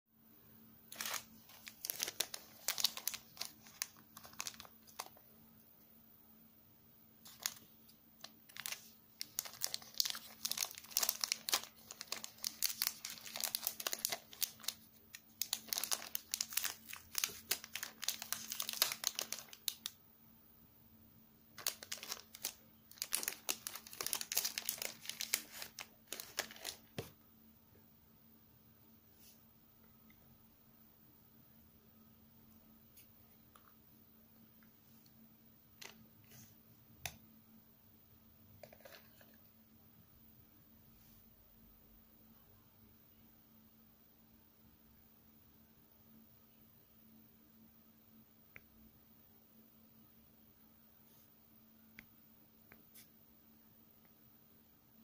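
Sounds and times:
plastic bag crinkling: 0:00.9 - 0:05.2, 0:07.2 - 0:20.0, 0:21.6 - 0:27.1.

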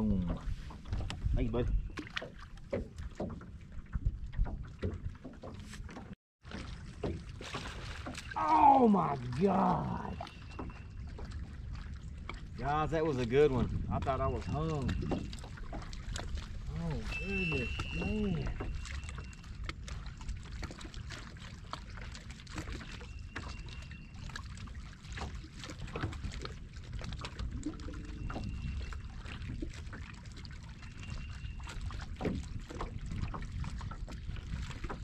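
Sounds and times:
wind rumble on microphone: 0:00.0 - 0:06.2, 0:09.9 - 0:35.0
waves lapping against boat hull: 0:00.0 - 0:35.0.

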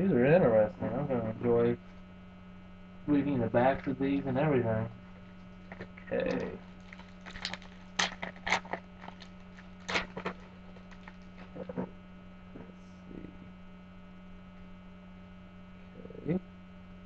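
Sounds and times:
electrical hum: 0:00.0 - 0:17.0
card packs crackling and rustling: 0:05.5 - 0:11.6.

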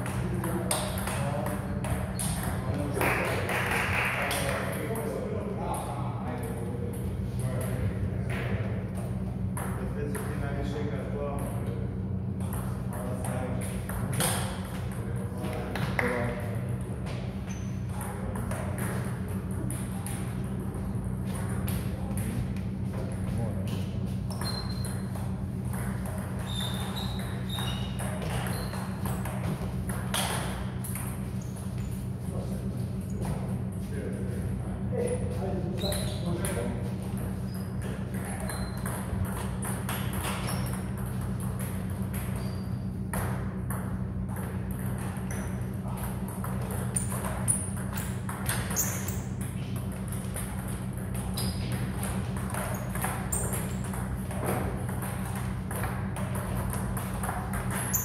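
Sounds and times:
shoe squeaks: 0:17.4 - 0:17.9, 0:24.1 - 0:25.2, 0:26.4 - 0:29.2, 0:31.3 - 0:32.1, 0:35.0 - 0:36.7, 0:37.4 - 0:38.9, 0:40.2 - 0:41.0, 0:42.3 - 0:42.9, 0:46.8 - 0:49.4, 0:51.2 - 0:52.0, 0:52.6 - 0:53.9, 0:57.7 - 0:58.0.

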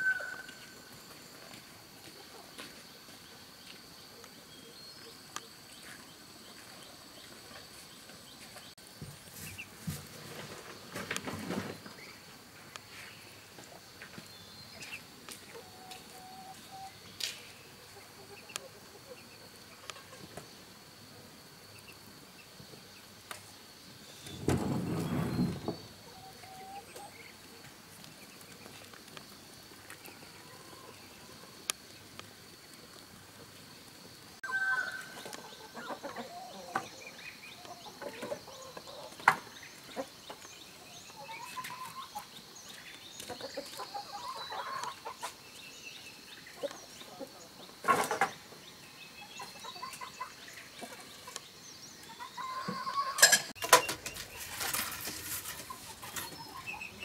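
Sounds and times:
chickens clucking: 0:17.8 - 0:20.4, 0:26.0 - 0:27.5, 0:35.0 - 0:42.4, 0:43.2 - 0:45.4, 0:46.5 - 0:48.6, 0:49.2 - 0:57.0.

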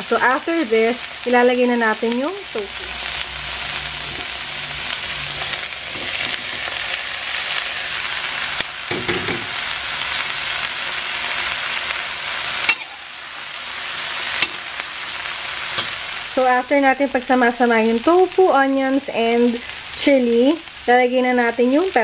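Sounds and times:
oil sizzling in a pan: 0:00.0 - 0:22.0
metal spatula scraping: 0:03.3 - 0:07.0, 0:12.6 - 0:13.0.

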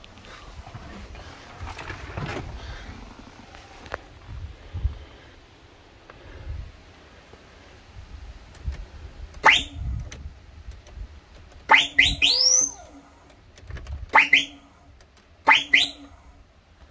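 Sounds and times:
truck whistle horn: 0:09.4 - 0:09.9, 0:11.7 - 0:13.0, 0:14.1 - 0:14.8, 0:15.5 - 0:16.2.

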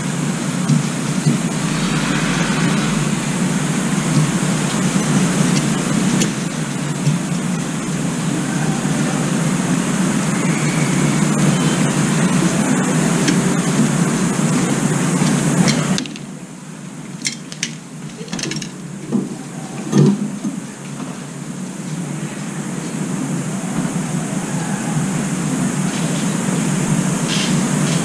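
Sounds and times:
loud steady rushing noise: 0:01.0 - 0:12.0.

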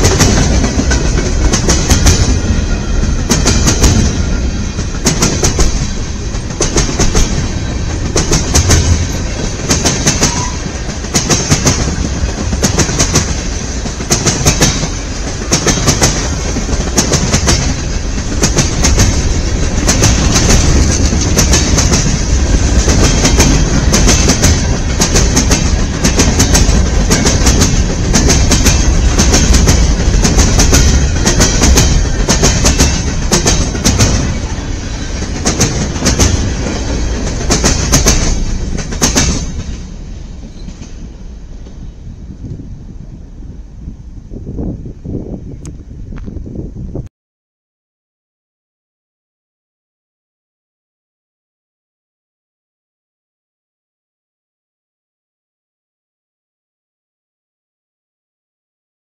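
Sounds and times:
train wheels clicking over rail joints: 0:00.0 - 0:42.6
freight train rumble: 0:00.0 - 0:47.1.

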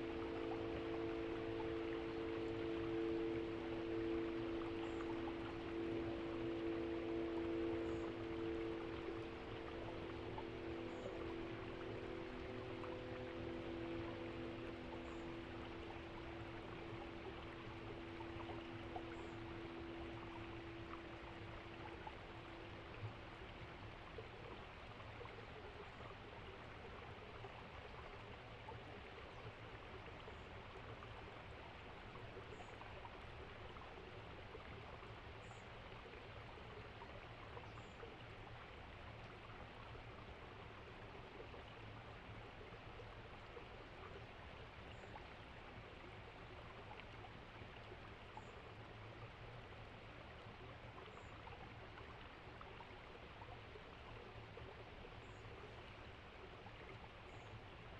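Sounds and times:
faint rushing noise: 0:00.0 - 0:23.8.

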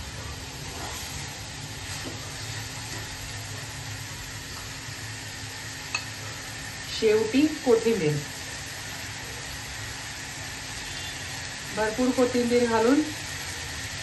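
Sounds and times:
food sizzling in a pan: 0:00.0 - 0:14.0.

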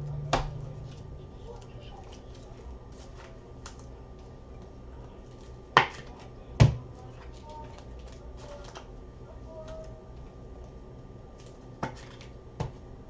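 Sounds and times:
cards and packaging clicking: 0:07.2 - 0:08.9.

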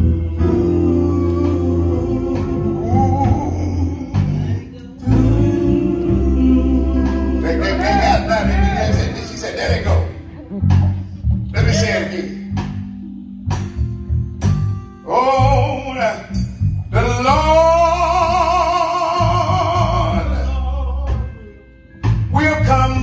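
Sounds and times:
electric bass: 0:00.0 - 0:23.0
man singing into microphone: 0:00.4 - 0:10.1, 0:15.1 - 0:16.3, 0:16.9 - 0:21.3, 0:22.3 - 0:23.0.

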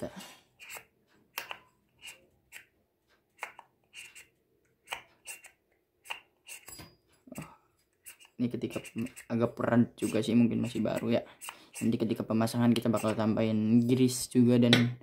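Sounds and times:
pulley sheave metallic scrapes: 0:06.4 - 0:07.0.

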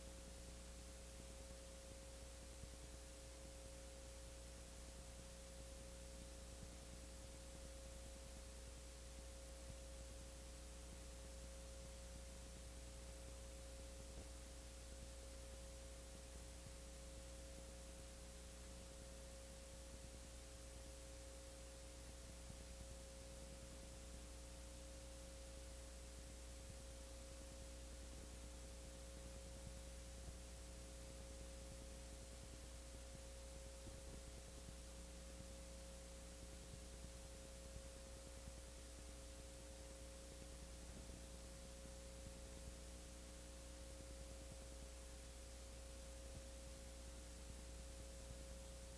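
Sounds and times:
electrical hum: 0:00.0 - 0:48.9.

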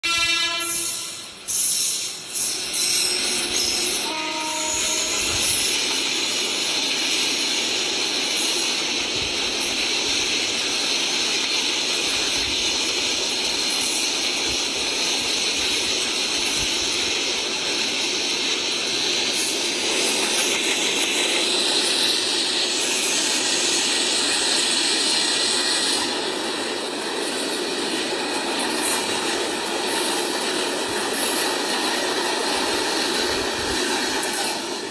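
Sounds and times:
train coaches rushing past: 0:00.0 - 0:34.9
high hiss: 0:00.6 - 0:26.4.

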